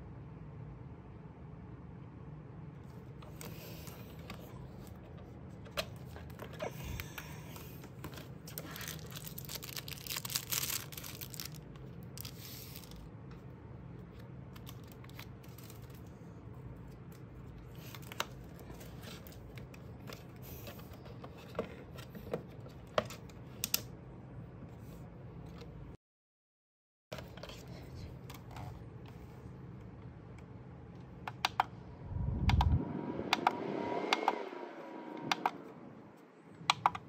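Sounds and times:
plastic wrapping crinkling: 0:08.0 - 0:13.0
steady low hum: 0:27.3 - 0:37.0.

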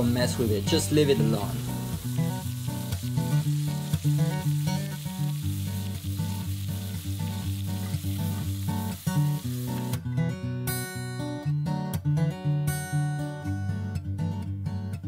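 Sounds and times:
steak sizzling in a skillet: 0:00.0 - 0:10.0
acoustic guitar music: 0:00.0 - 0:15.0.

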